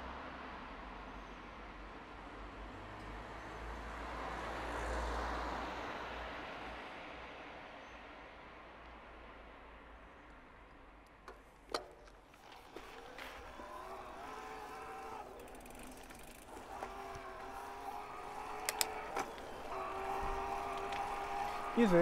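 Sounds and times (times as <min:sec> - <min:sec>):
motor hum with pitched tones: 0:12.8 - 0:22.0
sharp clicks: 0:14.1 - 0:21.8.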